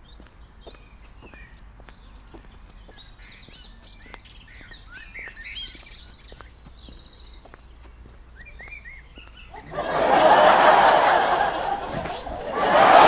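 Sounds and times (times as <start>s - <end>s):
songbirds singing and chirping: 0.0s - 10.0s.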